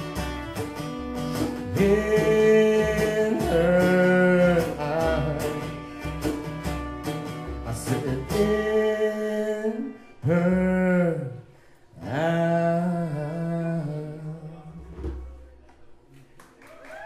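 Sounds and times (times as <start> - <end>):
strummed acoustic guitar: 0.0 - 15.5
man singing long notes: 1.6 - 5.8, 7.6 - 14.9.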